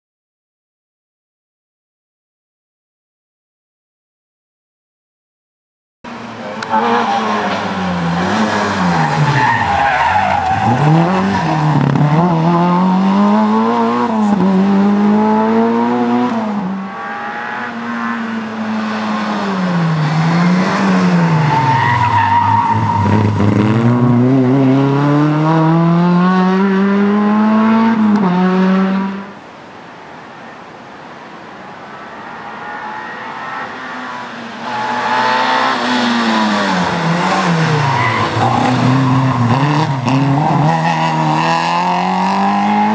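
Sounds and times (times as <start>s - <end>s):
rally car engines revving: 6.1s - 29.4s, 31.9s - 42.9s.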